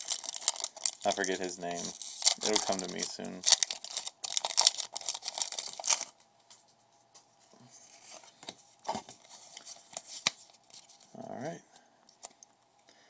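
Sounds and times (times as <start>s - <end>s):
foil wrapper crinkling: 0.0s - 6.2s
cards rustling and ticking: 0.0s - 6.6s, 8.1s - 11.1s.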